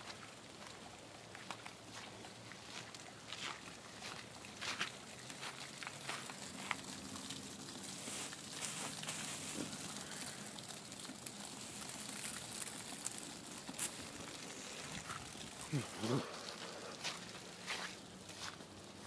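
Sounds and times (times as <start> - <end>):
hailstones crunching in a hand: 0.0 - 18.8
steady hiss: 4.0 - 19.0.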